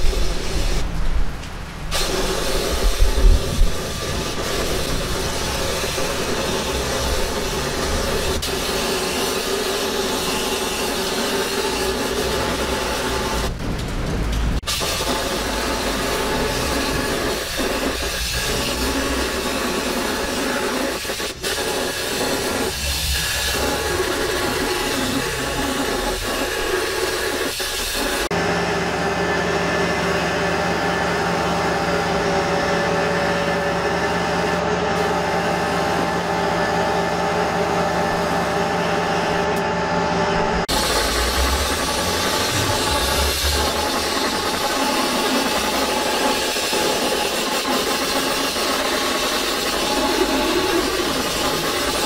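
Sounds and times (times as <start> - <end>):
spray gun air hiss: 0.0 - 0.9, 1.9 - 13.5, 14.7 - 28.3, 40.7 - 52.0
machine hum: 0.0 - 27.4, 28.2 - 52.0.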